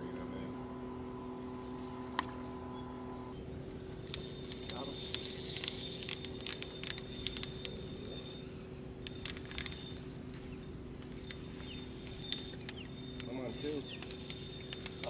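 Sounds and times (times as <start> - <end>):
steady low hum: 0.0 - 15.0
mechanical clicks and ticks: 3.9 - 8.2, 9.0 - 10.0, 11.0 - 15.0.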